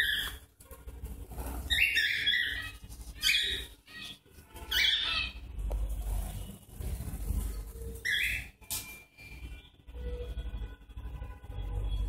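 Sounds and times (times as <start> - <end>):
cockatiels squawking: 0.0 - 0.4, 1.4 - 5.4, 7.9 - 8.6.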